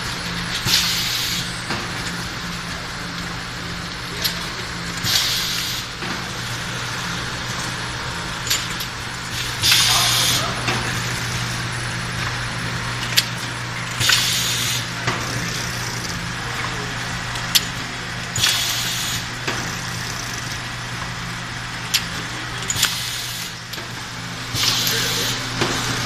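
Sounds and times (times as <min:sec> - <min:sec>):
machine humming: 0:00.0 - 0:26.0
pneumatic air hiss: 0:00.7 - 0:01.5, 0:05.0 - 0:06.0, 0:09.5 - 0:10.6, 0:14.0 - 0:16.1, 0:18.4 - 0:19.3, 0:22.8 - 0:23.6, 0:24.5 - 0:25.4.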